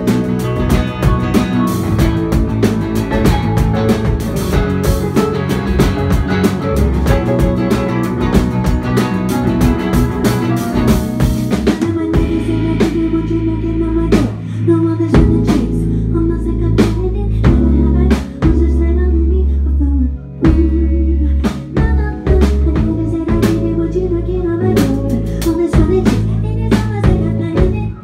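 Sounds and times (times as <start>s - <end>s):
drum kit: 0.0s - 19.0s, 20.4s - 28.0s
bass guitar: 0.0s - 28.0s
electric guitar: 0.0s - 28.0s.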